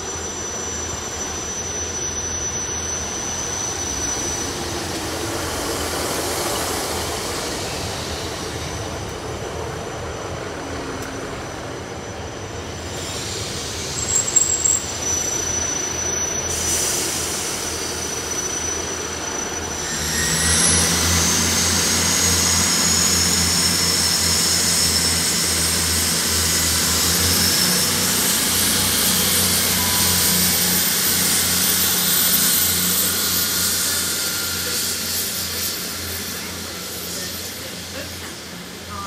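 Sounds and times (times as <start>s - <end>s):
train engines droning: 0.0s - 39.0s
high whine gliding up: 17.6s - 39.0s.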